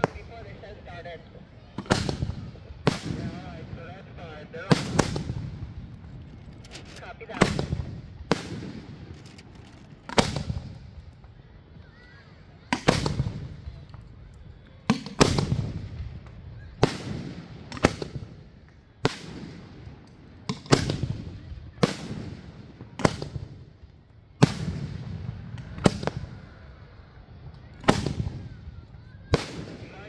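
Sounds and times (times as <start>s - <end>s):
low rumbling echo: 0.0s - 11.8s
fireworks bursting with bangs: 1.7s - 30.0s.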